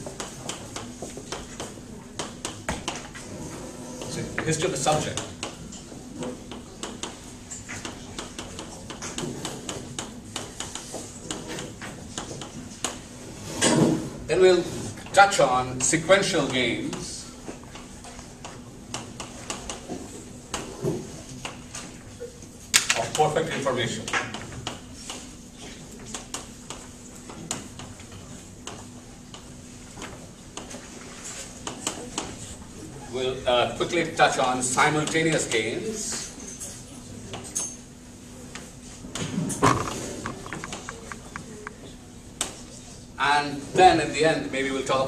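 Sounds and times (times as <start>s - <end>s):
faint steady hum: 0.0s - 45.0s
chalk tapping on blackboard: 7.8s - 11.4s, 39.7s - 41.8s.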